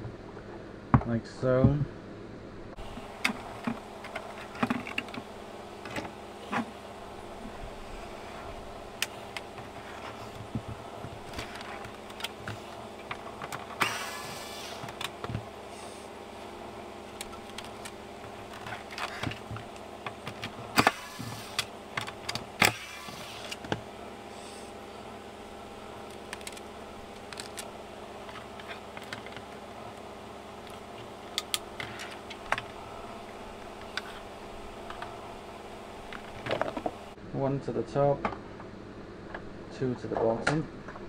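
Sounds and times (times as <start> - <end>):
cordless screwdriver whirring: 11.2 - 16.2, 17.1 - 24.8.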